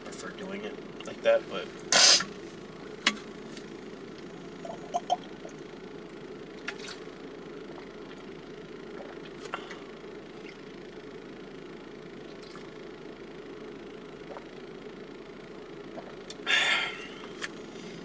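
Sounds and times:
steady low hum: 0:00.0 - 0:18.0
person gulping a drink: 0:04.6 - 0:05.6, 0:08.9 - 0:10.6, 0:14.2 - 0:14.6, 0:15.9 - 0:16.4.

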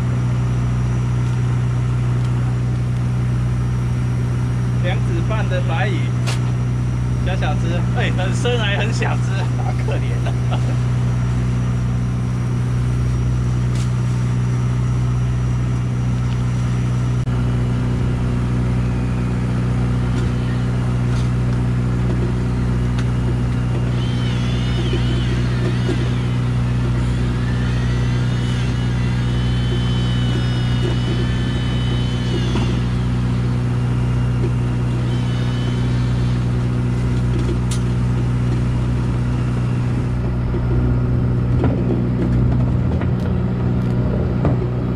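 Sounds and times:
faint wavering high whine: 0:00.0 - 0:43.7
boat engine low drone: 0:00.0 - 0:44.9.

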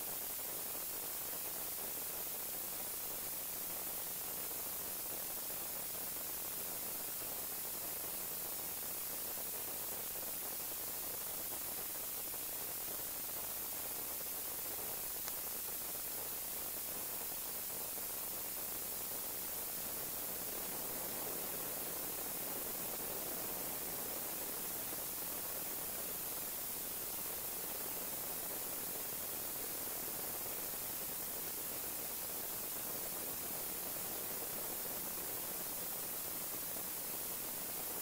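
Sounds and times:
steady hiss: 0:00.0 - 0:38.0
faint tick: 0:15.2 - 0:15.4.

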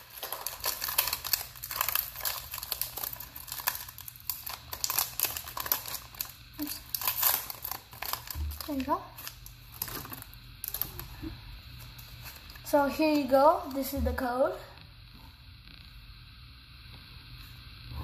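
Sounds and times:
foil wrapper crinkling: 0:00.0 - 0:14.3.

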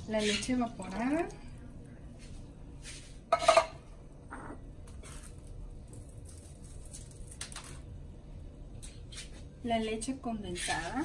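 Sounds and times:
kitchenware clinking: 0:03.3 - 0:04.6.

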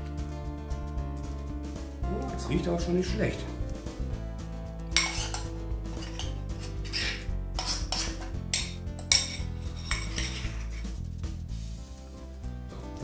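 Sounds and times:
background music: 0:00.0 - 0:13.0
metal spoon scraping dishes: 0:04.9 - 0:11.0.

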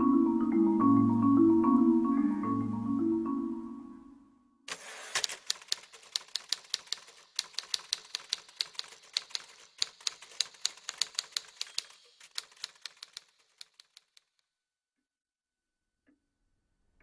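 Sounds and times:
typewriter keys clacking: 0:04.7 - 0:14.4.

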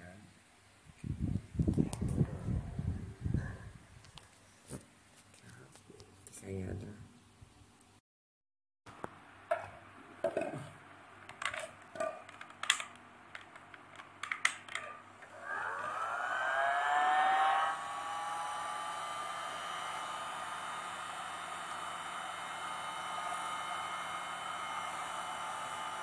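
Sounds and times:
handling clicks and knocks: 0:11.2 - 0:14.9
heat gun whirring: 0:15.2 - 0:26.0.

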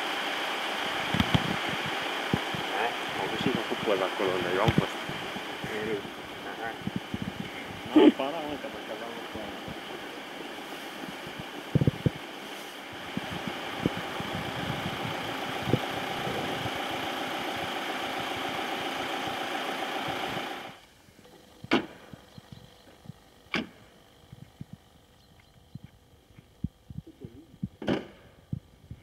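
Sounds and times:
wind on microphone: 0:00.9 - 0:08.0, 0:10.9 - 0:12.2, 0:12.9 - 0:17.7, 0:21.9 - 0:29.0.

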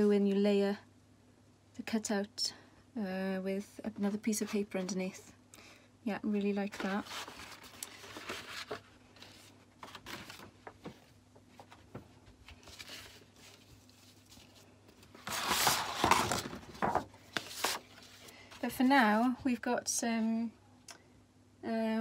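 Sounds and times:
paper rustling: 0:06.6 - 0:18.7.

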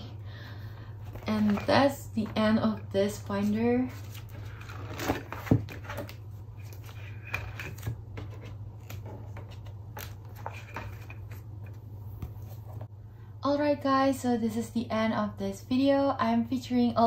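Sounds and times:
steady low hum: 0:00.0 - 0:17.0
plastic pages rustling: 0:01.0 - 0:02.4, 0:03.4 - 0:11.4.

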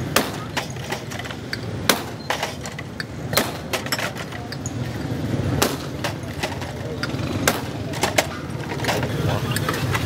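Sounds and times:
glass bottles clinking: 0:00.4 - 0:05.2.

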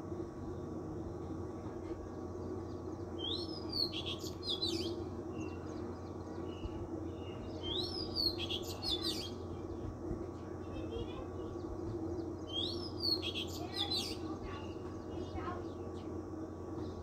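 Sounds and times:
low hum: 0:00.0 - 0:13.4
songbird singing: 0:00.0 - 0:17.0.

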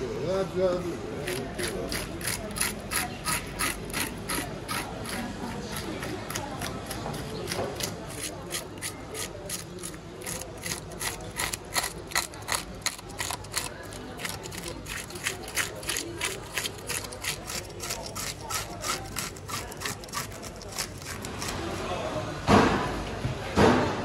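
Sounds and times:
metal scaler scraping fish scales: 0:01.2 - 0:22.1.

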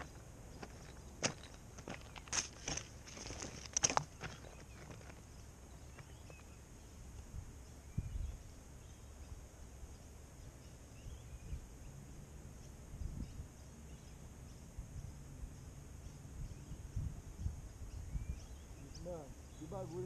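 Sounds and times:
faint bird chirps: 0:04.1 - 0:20.0.

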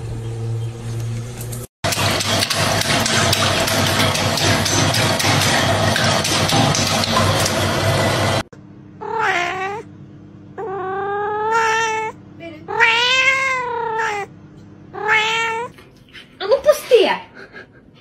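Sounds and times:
toilet flushing: 0:01.8 - 0:08.5
cat meowing: 0:09.0 - 0:09.9, 0:10.6 - 0:14.3, 0:14.9 - 0:15.8.

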